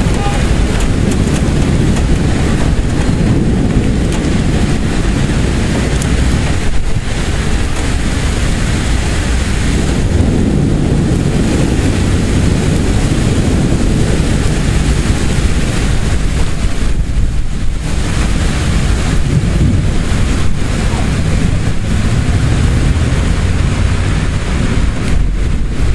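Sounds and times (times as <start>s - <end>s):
rain: 0.0s - 25.9s
wind buffeting microphone: 0.0s - 25.9s.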